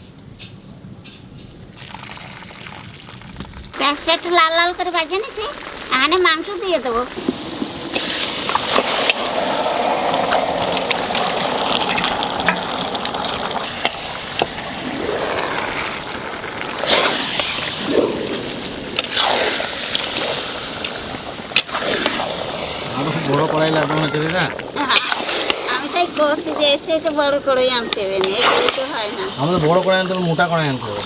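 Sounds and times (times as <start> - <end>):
meat sizzling in oil: 3.8 - 21.0.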